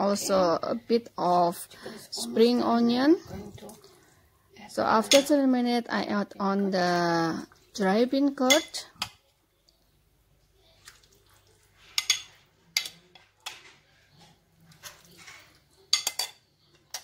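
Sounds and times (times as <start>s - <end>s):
metal ladle clinking on pot: 15.9s - 17.0s.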